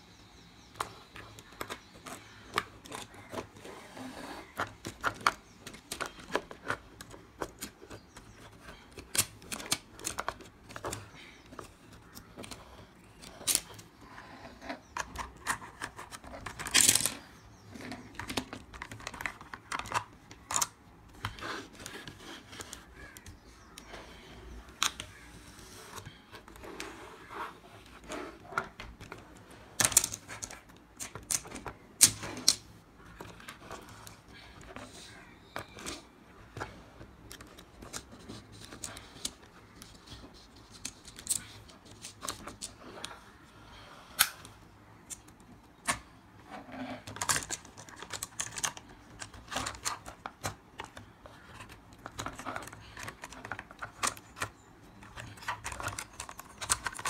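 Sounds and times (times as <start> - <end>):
plastic toy pieces clicking: 15.0 - 17.2, 29.8 - 34.0, 40.7 - 42.8, 47.1 - 57.0.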